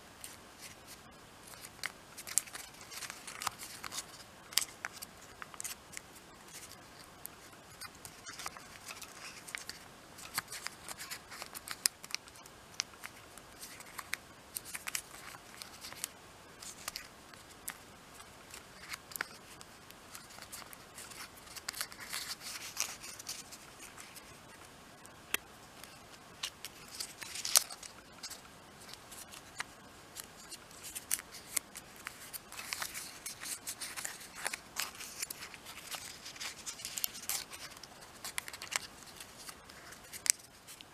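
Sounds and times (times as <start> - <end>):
loud paper crackle: 0.2 - 6.8, 25.8 - 40.8
paper being folded: 0.2 - 25.1, 25.8 - 40.9.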